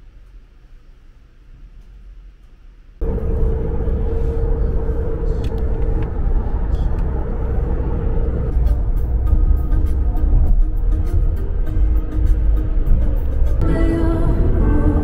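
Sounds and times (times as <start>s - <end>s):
steady hum: 0.0s - 15.0s
car engine and road rumble: 3.0s - 15.0s.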